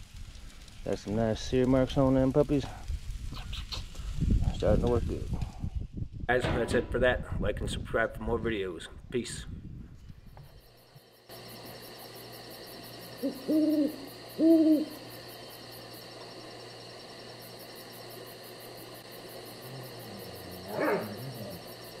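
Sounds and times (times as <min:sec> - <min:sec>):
night ambience: 0:00.0 - 0:22.0
owl hooting: 0:13.1 - 0:15.6, 0:19.6 - 0:21.7.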